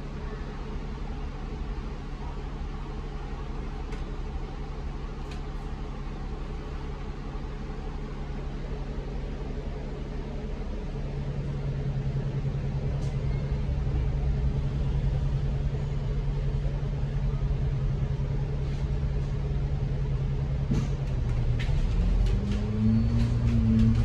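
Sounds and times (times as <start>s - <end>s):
bus engine idling: 0.0s - 24.0s
bus engine revving: 20.4s - 24.0s.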